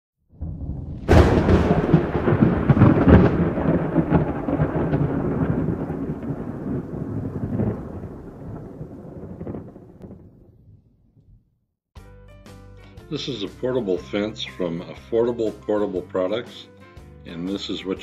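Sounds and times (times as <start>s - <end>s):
thunderclap crack and rumble: 0.3s - 11.5s
rain falling: 0.7s - 10.3s.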